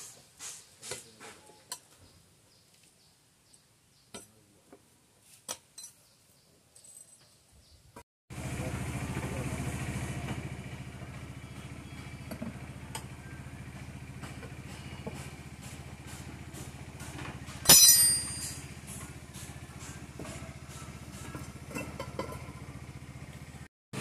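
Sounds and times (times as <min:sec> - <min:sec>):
low engine hum: 0:08.3 - 0:24.0
ringing metal clank: 0:17.6 - 0:18.8.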